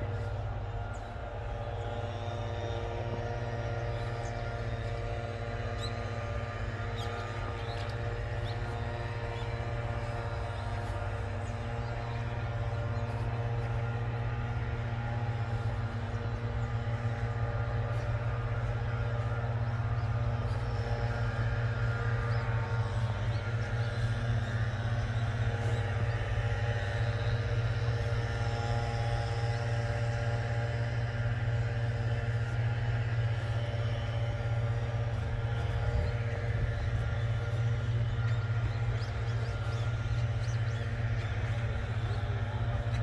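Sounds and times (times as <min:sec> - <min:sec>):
low mechanical hum: 0:00.0 - 0:43.0.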